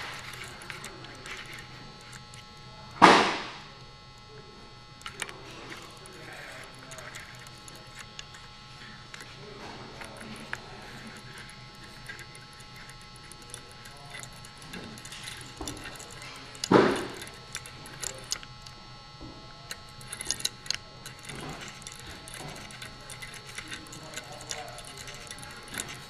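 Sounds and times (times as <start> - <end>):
gear pins clicking and rattling: 0.0 - 3.6, 4.9 - 26.0.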